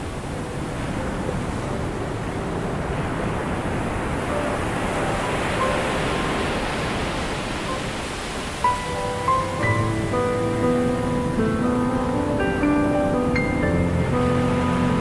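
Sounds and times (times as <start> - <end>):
rushing wash of noise: 0.0 - 15.0
held melody notes: 8.6 - 15.0.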